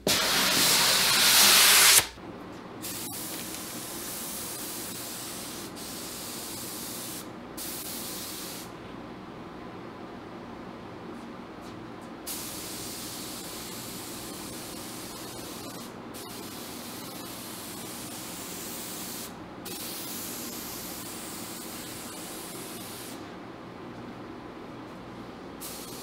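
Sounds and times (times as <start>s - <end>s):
low background hum: 2.1s - 26.0s
spray gun hissing: 2.8s - 8.7s, 12.3s - 23.2s, 25.6s - 26.0s.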